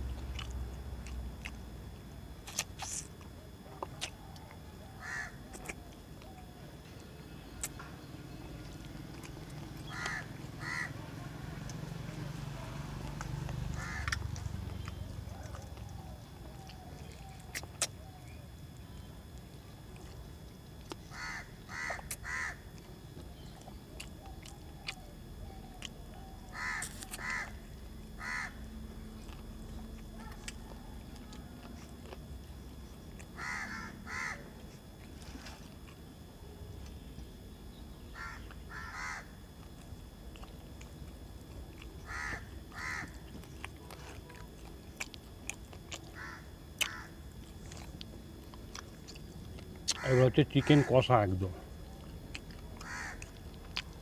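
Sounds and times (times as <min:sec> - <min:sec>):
person chewing: 0:00.0 - 0:04.6, 0:05.4 - 0:06.5, 0:07.5 - 0:10.7, 0:11.6 - 0:37.3, 0:39.4 - 0:50.2, 0:51.6 - 0:54.0
crow cawing: 0:05.0 - 0:05.4, 0:09.8 - 0:11.1, 0:13.7 - 0:14.3, 0:21.0 - 0:22.6, 0:26.5 - 0:27.6, 0:28.2 - 0:28.6, 0:33.4 - 0:34.5, 0:38.1 - 0:39.4, 0:42.0 - 0:43.2, 0:46.1 - 0:47.2, 0:49.9 - 0:51.1, 0:52.8 - 0:53.3.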